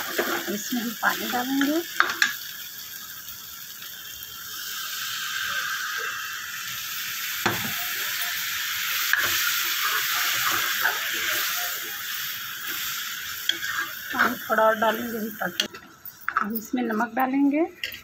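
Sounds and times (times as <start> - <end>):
food sizzling and hissing: 0.0 - 18.0
ladle scraping a pan: 13.4 - 14.4.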